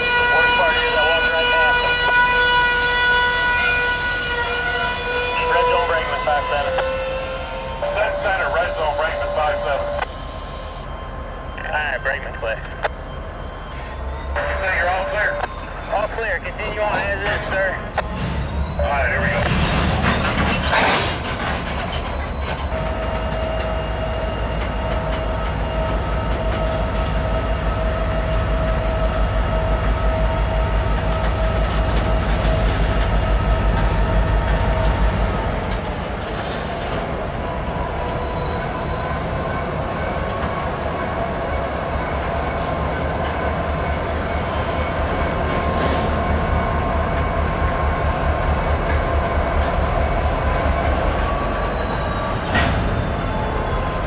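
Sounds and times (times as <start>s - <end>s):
diesel locomotive throb: 0.0s - 54.0s
train wheel squeal: 0.0s - 54.0s.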